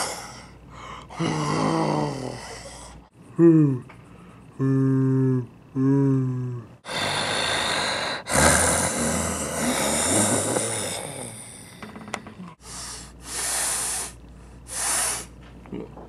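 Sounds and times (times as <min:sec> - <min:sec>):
man making spraying blows with lips: 0:12.6 - 0:15.4.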